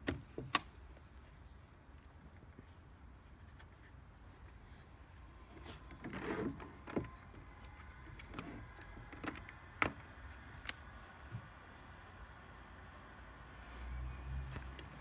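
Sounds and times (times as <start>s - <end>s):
faint steady whine: 0.4s - 15.0s.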